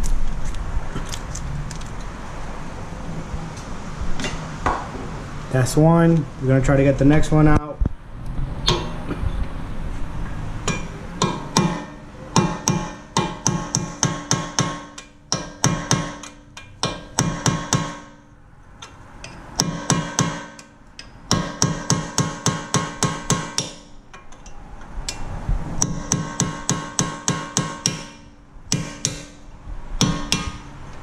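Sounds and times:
hammer striking metal punch: 0:08.6 - 0:09.1, 0:10.6 - 0:24.0, 0:25.8 - 0:30.7.

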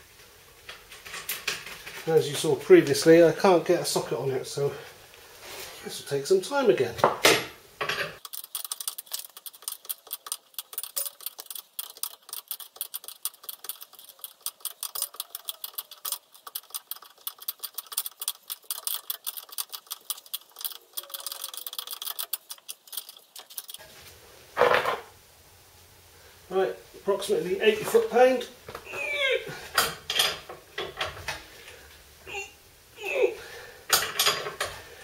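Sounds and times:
ratchet spanner clicking: 0:08.2 - 0:23.8.

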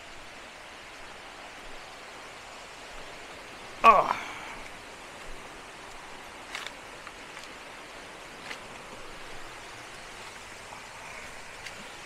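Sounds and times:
waterfall rushing water: 0:00.0 - 0:12.0
footsteps on dry leaves and stones: 0:04.6 - 0:12.0.

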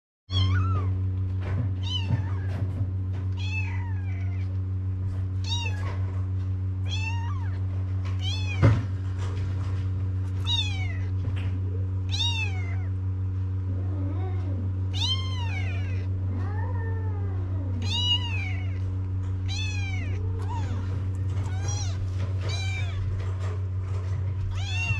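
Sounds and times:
steady low hum: 0:00.3 - 0:24.9
kittens mewing: 0:01.8 - 0:04.6, 0:10.3 - 0:13.0, 0:13.6 - 0:23.6, 0:24.3 - 0:24.9.

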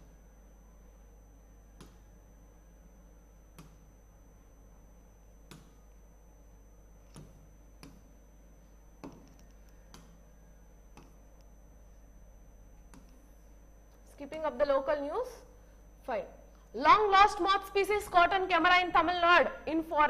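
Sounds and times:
faint low hum: 0:00.0 - 0:20.0
taps on a display screen: 0:01.8 - 0:02.1, 0:03.5 - 0:03.9, 0:05.4 - 0:05.8, 0:07.1 - 0:08.1, 0:09.0 - 0:10.2, 0:10.9 - 0:11.5.

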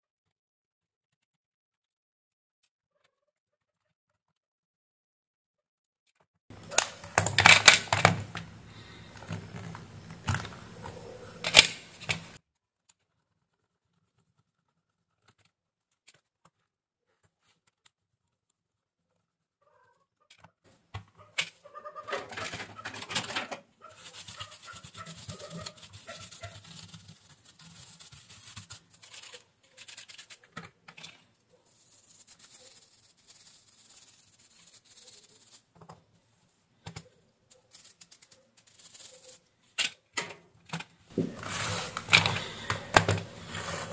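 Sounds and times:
plastic clatter and scraping: 0:06.5 - 0:12.4, 0:20.3 - 0:23.7, 0:39.8 - 0:43.9
stiff brush scratching: 0:08.4 - 0:12.4, 0:23.8 - 0:30.6, 0:31.5 - 0:35.8, 0:37.5 - 0:39.6, 0:41.1 - 0:43.9.

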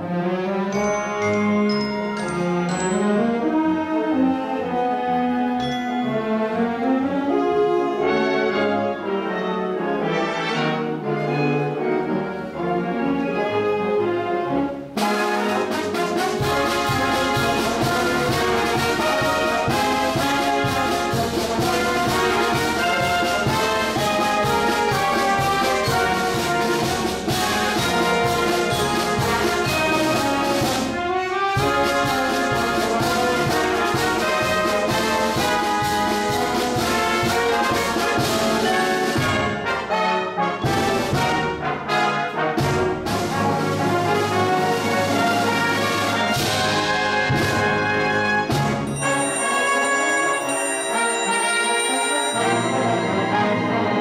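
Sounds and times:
wind band playing: 0:00.0 - 0:54.0
percussion beat: 0:00.8 - 0:03.6, 0:15.0 - 0:31.0, 0:31.6 - 0:39.8, 0:48.5 - 0:54.0.

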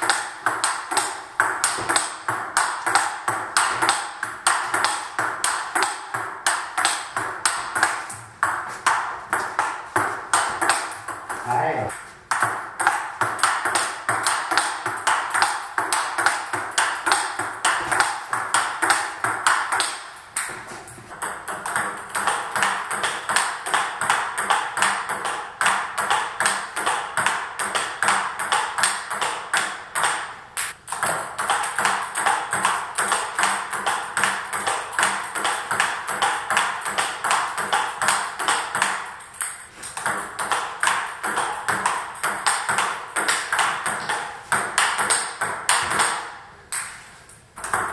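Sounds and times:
table tennis ball rally: 0:00.0 - 0:47.9.

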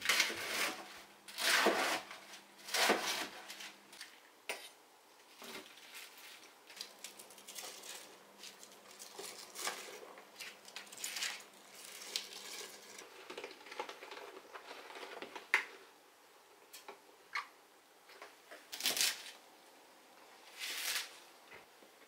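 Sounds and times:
cabbage leaves rustling and squeaking: 0:20.5 - 0:21.2.

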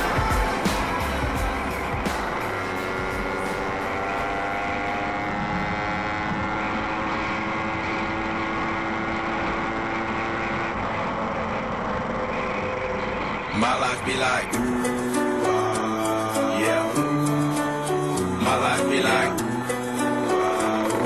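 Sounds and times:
motorcycle engine running: 0:00.0 - 0:13.5, 0:14.6 - 0:21.0
wind rushing over microphone: 0:05.2 - 0:06.9.

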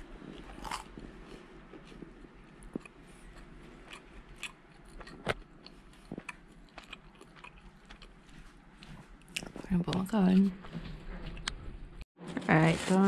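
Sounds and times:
person chewing: 0:00.1 - 0:09.6.

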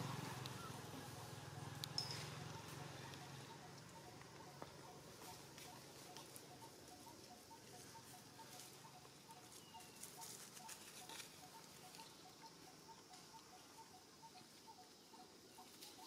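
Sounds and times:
soft crackles and rustles: 0:07.5 - 0:12.2.

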